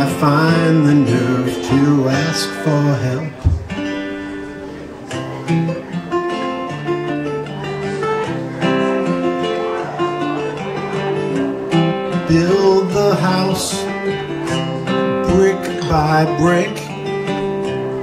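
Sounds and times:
person singing: 0:00.0 - 0:03.5, 0:09.4 - 0:17.2
acoustic guitar picking: 0:00.0 - 0:18.0.

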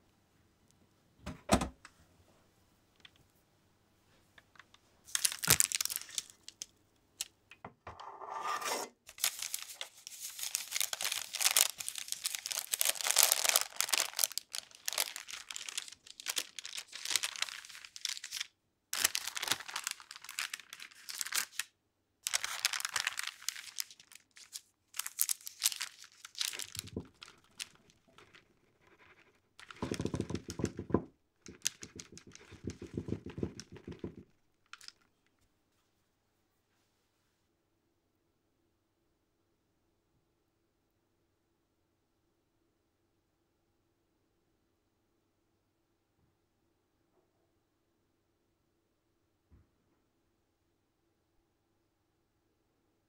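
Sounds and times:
paper rustling: 0:05.1 - 0:06.7, 0:09.1 - 0:35.0
baking parchment crinkling: 0:05.1 - 0:07.4, 0:09.1 - 0:35.2.

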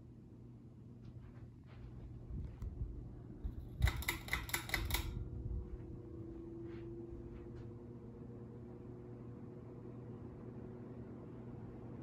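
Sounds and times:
ceiling fan motor hum: 0:00.0 - 0:12.0
sharp clicks: 0:03.8 - 0:05.2.

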